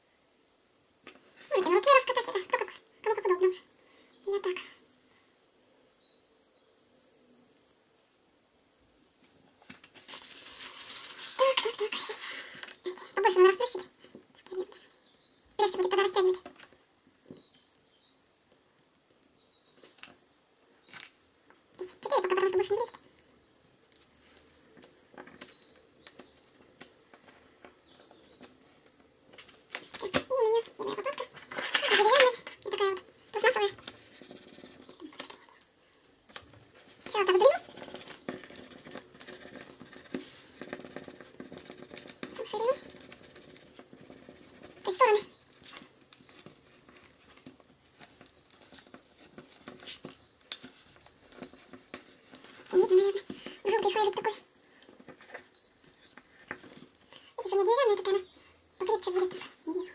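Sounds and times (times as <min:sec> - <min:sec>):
fingers tapping clay on plastic: 0:33.7 - 0:53.6.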